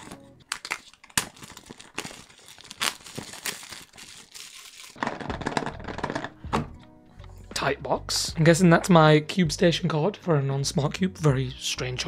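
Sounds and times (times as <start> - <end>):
wrapping torn and crinkled: 0.0 - 5.3.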